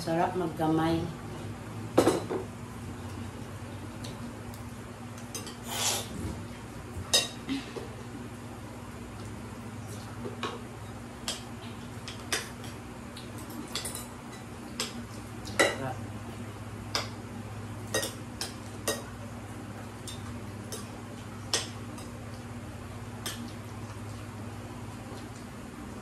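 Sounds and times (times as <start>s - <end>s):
dishes clinking on table: 2.0s - 2.5s.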